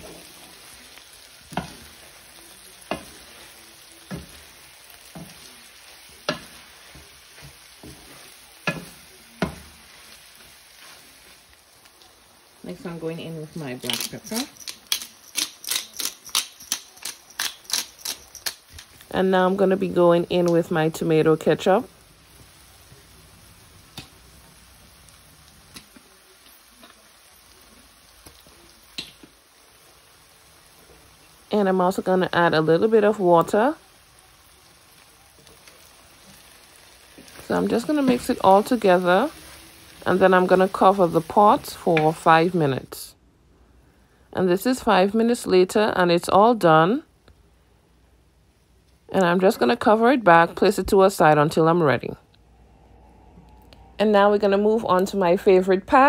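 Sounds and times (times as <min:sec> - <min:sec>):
wooden spoon stirring in a pan: 0:00.0 - 0:16.2, 0:33.0 - 0:42.5
light sizzle of frying: 0:00.0 - 0:52.2.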